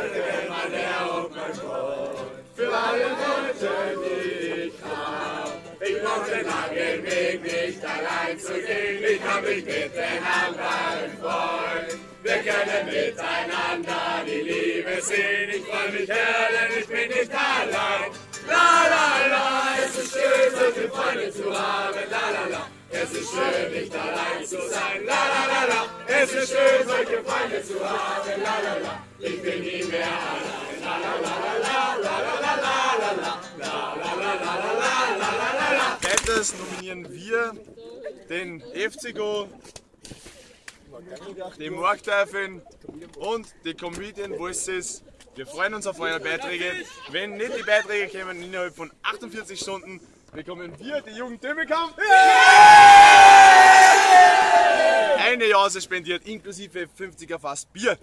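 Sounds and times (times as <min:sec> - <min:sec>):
crowd singing in chorus: 0:00.0 - 0:36.8
strummed acoustic guitar: 0:00.0 - 0:36.9.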